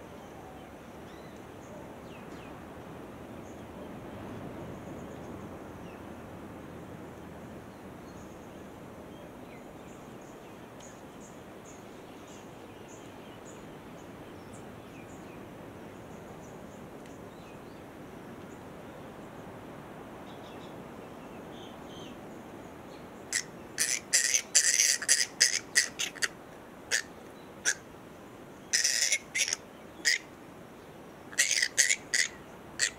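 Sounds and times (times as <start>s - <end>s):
steady outdoor hiss: 0.0s - 32.9s
fruit bat squawking: 23.3s - 27.8s, 28.7s - 30.3s, 31.3s - 32.9s.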